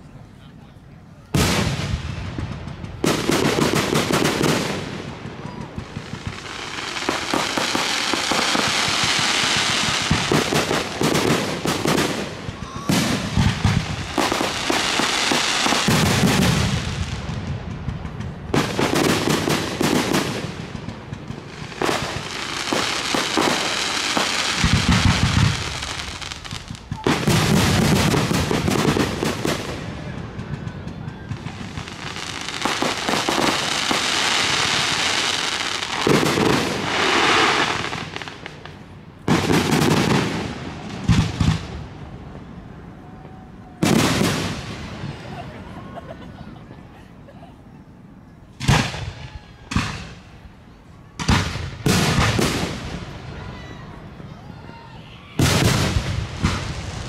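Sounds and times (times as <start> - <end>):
firework crackling and hiss: 1.3 - 45.3, 48.6 - 50.6, 51.2 - 57.0
firework shells booming: 1.4 - 42.4, 51.2 - 53.2, 55.4 - 57.0.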